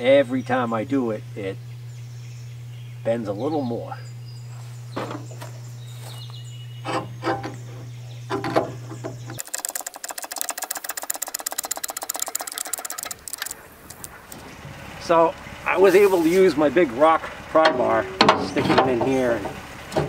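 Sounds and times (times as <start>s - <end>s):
steady hum: 0.0s - 20.0s
hydraulic hand pump knocks and creaks: 4.9s - 5.4s, 6.8s - 9.4s
fast clicking buzz: 6.8s - 14.4s.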